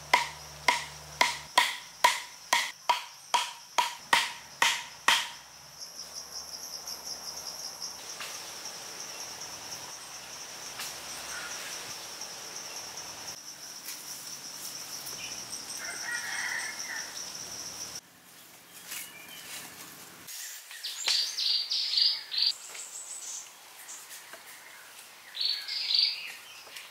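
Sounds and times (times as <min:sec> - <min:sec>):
high-pitched insect trill: 0:00.0 - 0:18.0.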